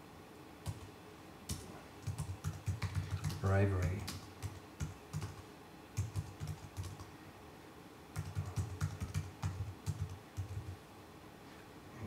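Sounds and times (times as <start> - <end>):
typing on computer keyboard: 0.7 - 0.9, 1.5 - 5.4, 6.0 - 7.1, 8.1 - 10.8.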